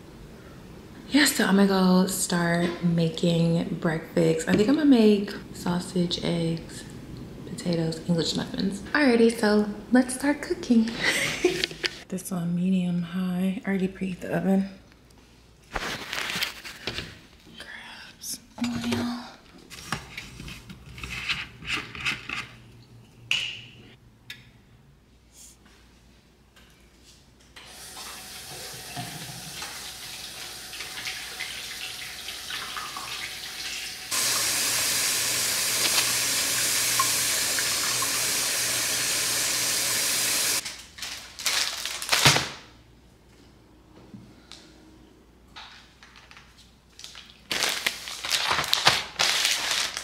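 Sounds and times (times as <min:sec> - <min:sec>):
water running from a tap: 0:27.6 - 0:40.6.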